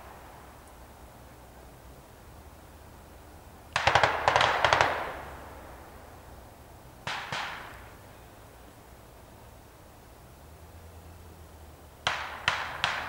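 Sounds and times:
echoing gunshots: 3.8 - 5.4, 7.1 - 7.9, 12.1 - 13.0.

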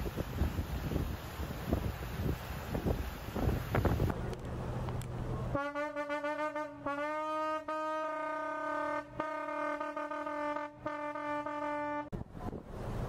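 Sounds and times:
wind buffeting microphone: 0.0 - 4.2.

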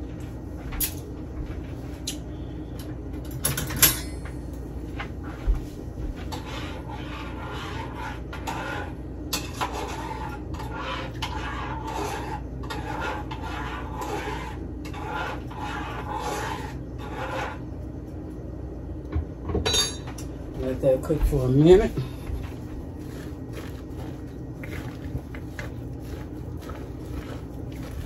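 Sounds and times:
steady low hum: 0.0 - 28.0
spoon scraping a saucepan: 6.3 - 17.6.

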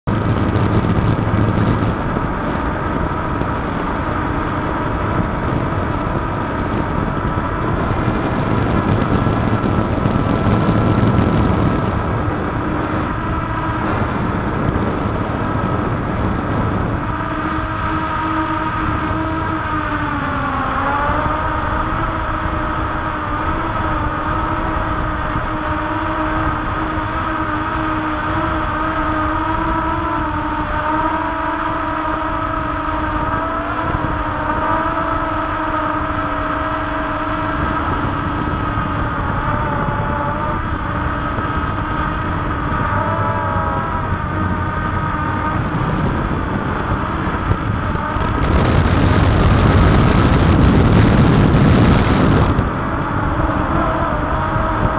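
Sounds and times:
low rumbling noise: 0.0 - 54.9
drone propellers whining: 0.1 - 54.9.

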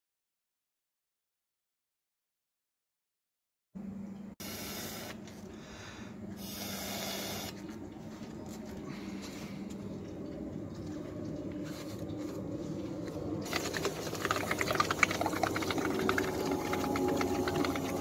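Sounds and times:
air escaping from balloon: 4.4 - 5.2, 6.4 - 7.6.

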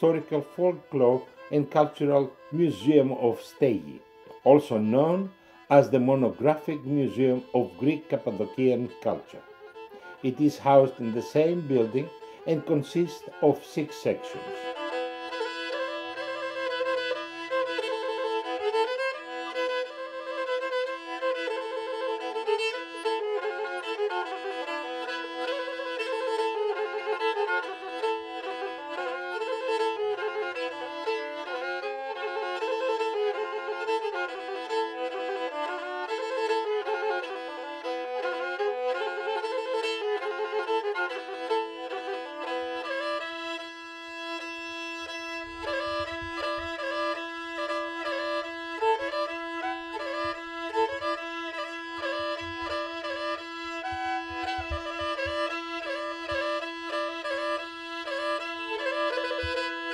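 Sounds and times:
bowed folk melody: 0.0 - 59.9
held drone note: 44.4 - 57.6
low beat: 45.0 - 47.3, 49.0 - 56.7.

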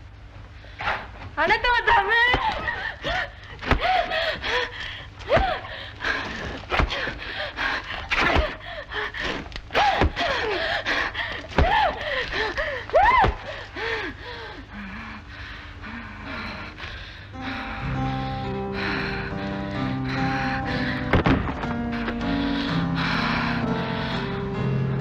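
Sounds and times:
breathy gasps: 13.5 - 24.6.

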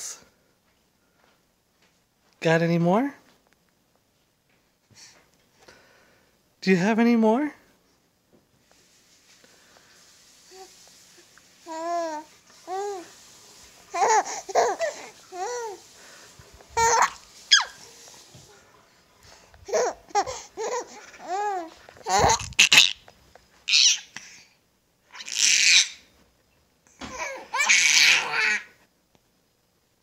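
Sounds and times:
baby babbling and squealing: 11.7 - 13.2, 13.9 - 15.8, 16.8 - 17.8, 19.7 - 23.0, 23.7 - 24.2, 25.2 - 26.0, 27.0 - 28.7.

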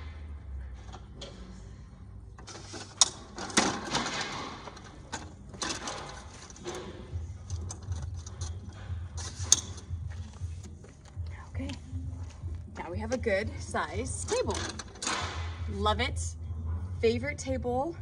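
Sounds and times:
metal table legs clicking and rattling: 3.0 - 8.8.

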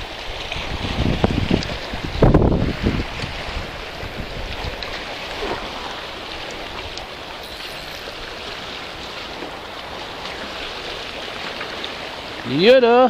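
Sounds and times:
small waves lapping against rocks: 0.0 - 13.0.

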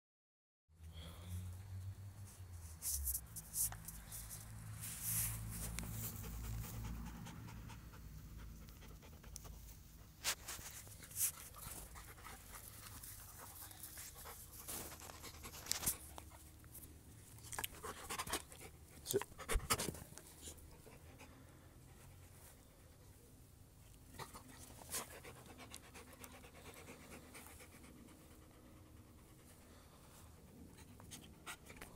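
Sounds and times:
dog panting: 5.4 - 16.7, 17.4 - 23.0, 24.1 - 31.9.

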